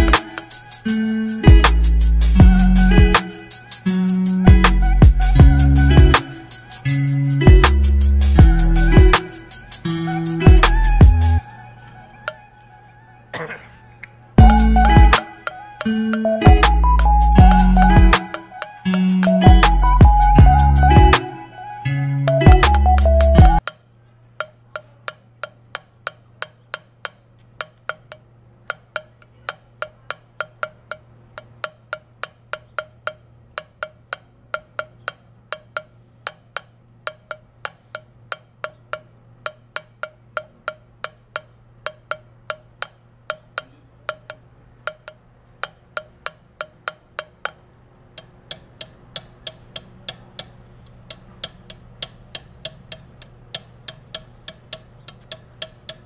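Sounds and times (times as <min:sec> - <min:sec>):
valve lapping ticks: 0:24.4 - 0:56.0.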